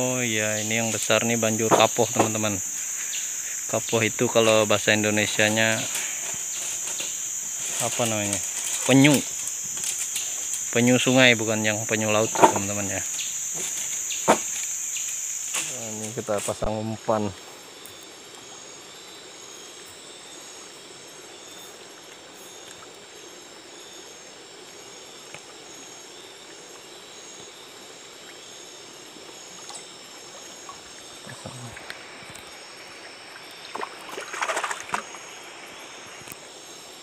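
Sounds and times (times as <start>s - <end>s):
night insects trilling: 0.0s - 37.0s
running river water: 0.0s - 37.0s
foot splashing in shallow water: 33.5s - 35.3s.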